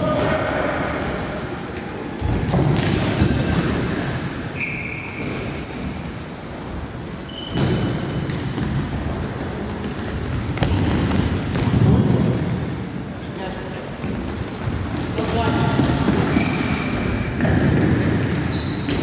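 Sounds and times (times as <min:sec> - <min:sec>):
shoes squeaking: 0:03.0 - 0:12.3, 0:14.0 - 0:19.0.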